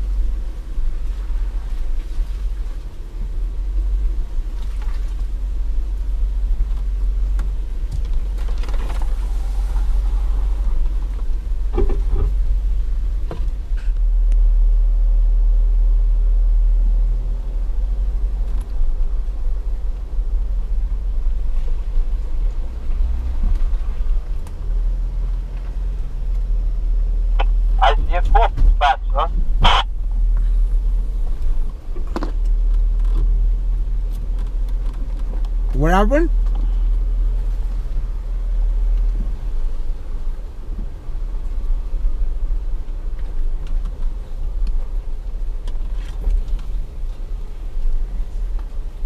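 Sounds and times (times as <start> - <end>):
low engine rumble: 0.0 - 49.0
vehicle body knocks and creaks: 10.8 - 14.0.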